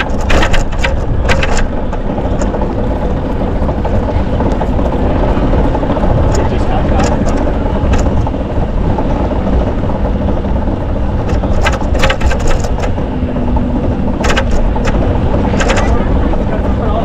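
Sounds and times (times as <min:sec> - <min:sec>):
wind and road rumble: 0:00.0 - 0:17.0
sharp clicks: 0:14.2 - 0:16.0.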